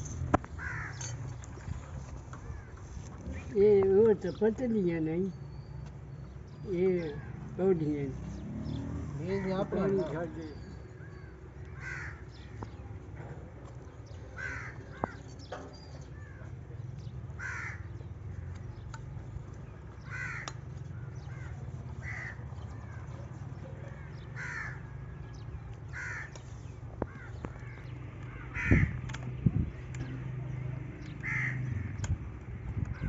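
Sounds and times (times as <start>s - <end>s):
crow cawing: 0.6s - 1.1s, 11.7s - 12.4s, 14.4s - 15.2s, 17.4s - 17.9s, 20.0s - 20.6s, 21.3s - 22.4s, 24.0s - 24.9s, 25.9s - 26.4s, 27.1s - 29.0s, 31.2s - 32.0s.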